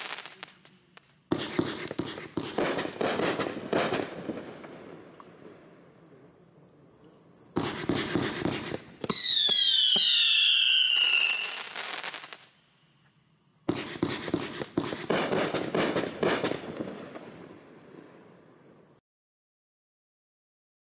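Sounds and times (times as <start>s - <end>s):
firework bangs: 0.0s - 0.7s, 1.3s - 5.9s, 7.5s - 12.5s, 13.7s - 18.7s
firework crackles: 0.0s - 6.5s, 7.4s - 12.8s, 13.6s - 19.0s
shrill falling whistles: 9.1s - 11.8s.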